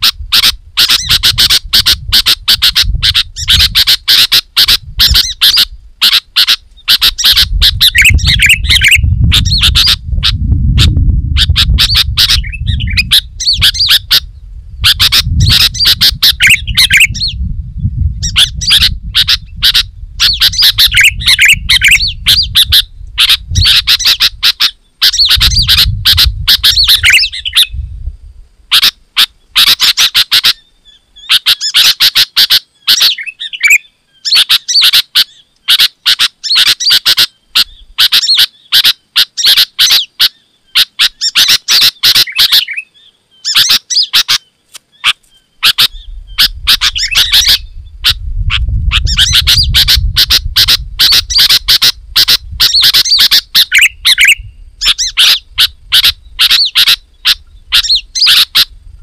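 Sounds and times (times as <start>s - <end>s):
birds chirping rapidly: 0.0s - 27.9s, 28.7s - 59.0s
low rumble: 7.5s - 24.1s, 25.2s - 28.6s.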